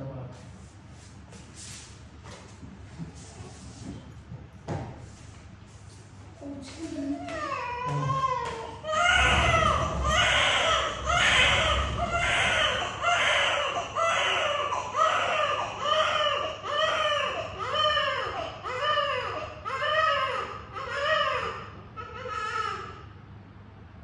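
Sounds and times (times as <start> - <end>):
newborn baby crying: 7.3 - 23.0.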